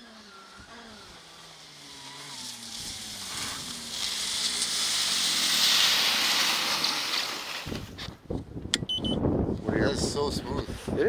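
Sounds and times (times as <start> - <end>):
snowmobile track churning snow: 0.0 - 8.1.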